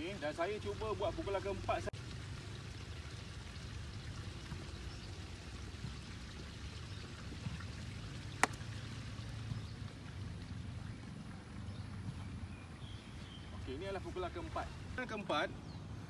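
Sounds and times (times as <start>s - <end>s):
outdoor hiss: 0.0s - 9.8s.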